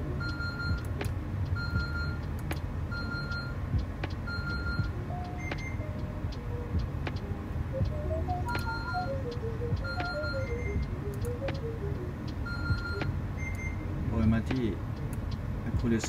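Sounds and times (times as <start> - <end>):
light melodic notes: 0.0 - 16.0
steady low hum: 0.0 - 16.0
high electronic beep: 0.2 - 0.9, 1.6 - 2.3, 2.9 - 3.6, 4.3 - 6.1, 7.7 - 13.9
sharp clicks: 2.2 - 2.7, 3.3 - 5.7.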